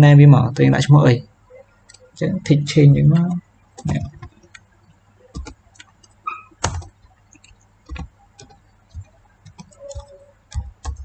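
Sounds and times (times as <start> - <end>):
keyboard keystrokes: 3.8 - 4.7, 5.3 - 11.0.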